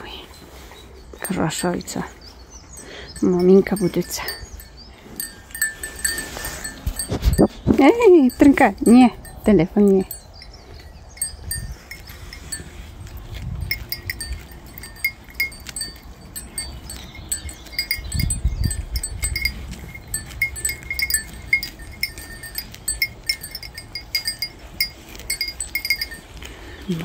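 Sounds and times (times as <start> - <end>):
small bell tinkling: 2.7 - 12.8, 13.6 - 27.0
low microphone rumbles: 2.7 - 26.2.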